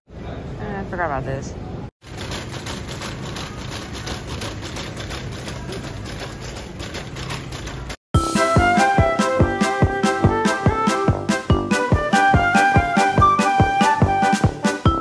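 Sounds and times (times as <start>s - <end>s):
shopping cart rattling: 2.0s - 8.0s
music with steady beat: 8.2s - 15.0s.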